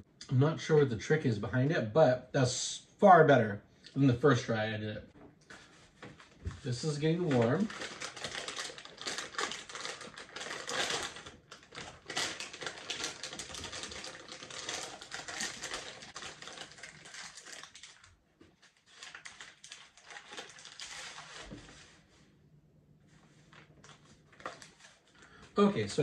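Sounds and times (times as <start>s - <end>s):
plastic pouches crinkling: 6.6s - 21.8s, 23.5s - 25.6s.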